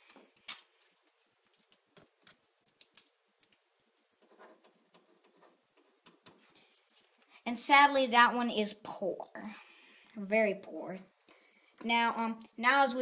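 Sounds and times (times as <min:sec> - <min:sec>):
pen scratching on paper: 0:04.2 - 0:06.5.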